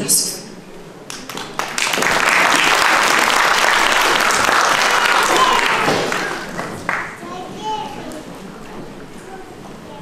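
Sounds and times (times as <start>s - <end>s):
audience applauding: 1.1s - 7.2s.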